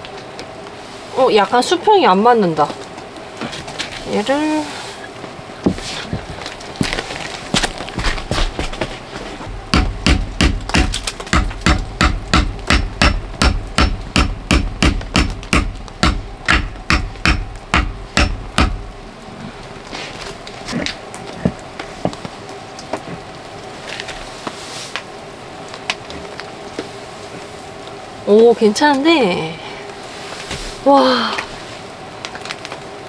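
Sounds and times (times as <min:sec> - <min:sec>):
hammer striking metal pot stand: 0:09.7 - 0:18.8.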